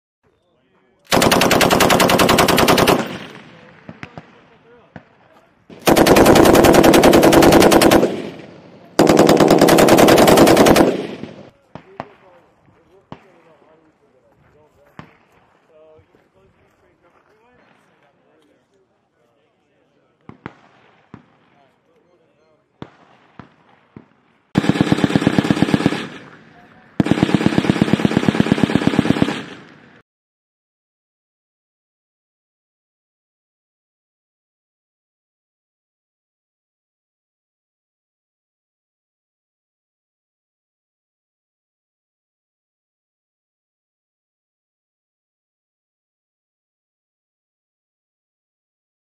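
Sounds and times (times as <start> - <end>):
machine gun bursts: 1.1 - 3.3, 5.8 - 8.4, 9.0 - 11.5, 24.6 - 26.3, 27.0 - 29.7
gunfire echo: 1.1 - 12.4, 20.3 - 21.7, 22.8 - 30.0.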